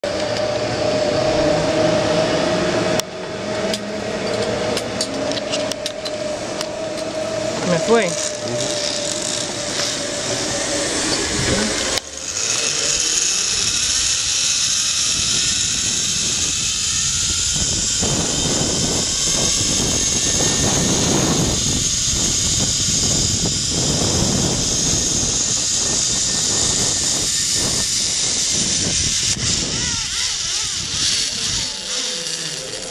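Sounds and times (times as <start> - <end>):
zip-line pulleys whirring on cable: 0.0 - 32.9
wind buffeting microphone: 5.8 - 12.0, 15.0 - 31.9.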